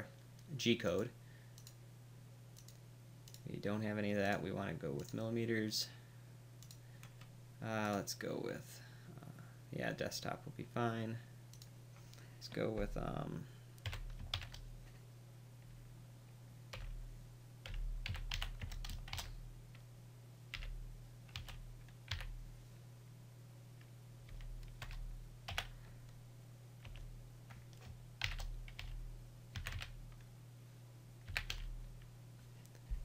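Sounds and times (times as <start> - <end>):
steady low hum: 0.0 - 33.0
keyboard typing: 13.8 - 14.7, 17.6 - 19.3, 20.5 - 22.3, 24.3 - 25.7, 26.8 - 30.2, 31.3 - 31.7.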